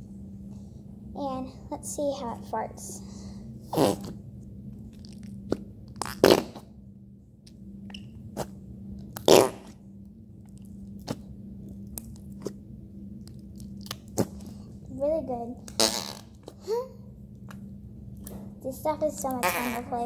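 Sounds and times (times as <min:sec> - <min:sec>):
putty squelching fart noises: 0:03.7 - 0:04.2, 0:05.0 - 0:06.7, 0:09.2 - 0:09.8, 0:15.6 - 0:16.7, 0:19.3 - 0:20.0
small squishing clicks: 0:10.0 - 0:14.6.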